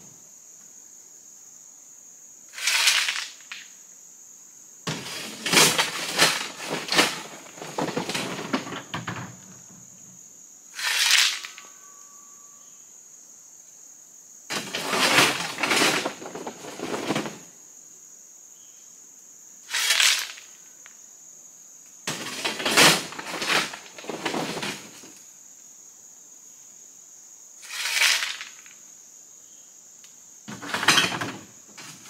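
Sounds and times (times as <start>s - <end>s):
rocks clattering: 4.9s - 9.2s, 22.1s - 25.1s
high-pitched insect drone: 10.7s - 13.1s.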